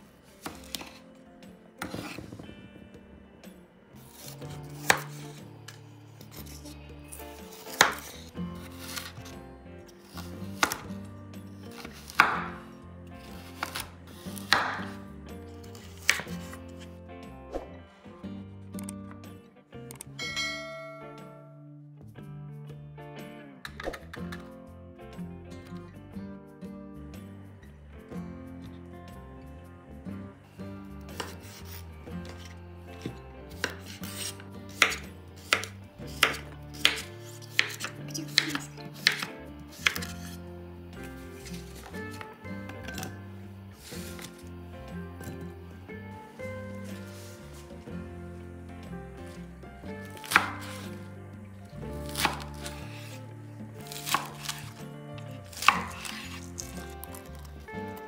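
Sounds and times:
knife chopping on wooden board: 0.4 - 1.0, 1.8 - 2.5, 4.0 - 5.5, 7.3 - 9.4, 10.0 - 11.0, 11.6 - 12.6, 13.2 - 15.0, 15.7 - 16.8, 31.0 - 40.4, 41.1 - 43.2, 43.8 - 44.4, 50.0 - 51.1, 52.0 - 53.2, 53.9 - 57.6.

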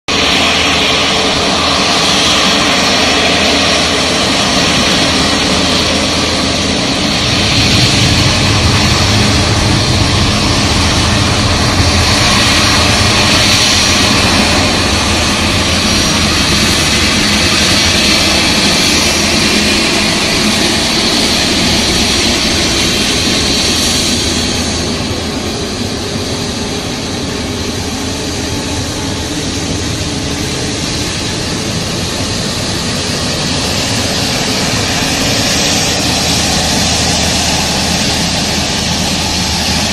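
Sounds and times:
jet engines rumbling with whine: 0.1 - 39.9.

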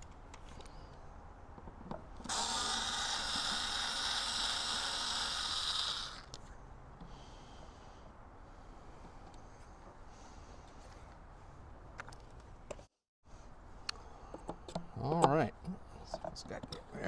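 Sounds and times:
cordless drill whining: 2.3 - 6.3.

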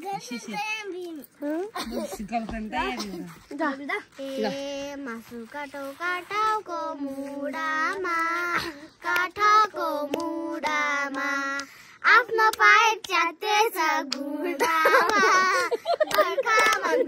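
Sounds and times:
girl singing unaccompanied: 3.3 - 17.0
girl breathing: 11.6 - 12.0.

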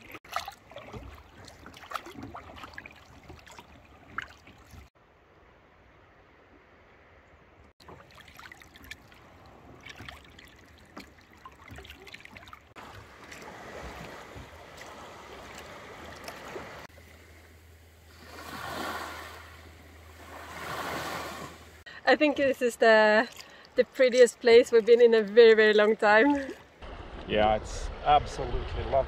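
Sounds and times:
small waves lapping and splashing: 0.0 - 27.2.

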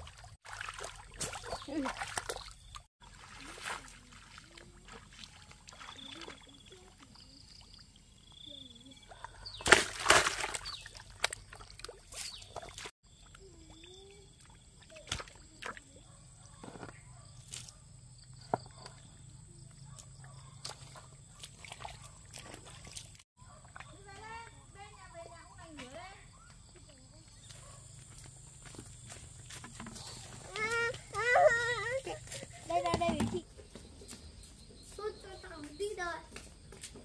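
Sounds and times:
water sloshing and splashing: 0.0 - 8.2, 9.1 - 16.9, 20.1 - 24.5.

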